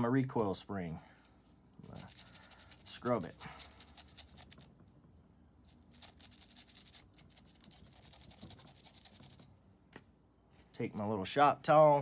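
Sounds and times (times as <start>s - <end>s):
brush scrubbing metal spring: 1.9s - 4.7s.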